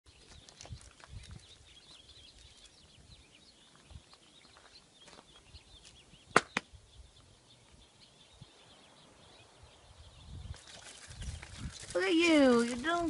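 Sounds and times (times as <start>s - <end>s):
bird chirping: 0.1s - 13.0s
footsteps on gravel: 3.6s - 6.0s, 11.8s - 13.0s.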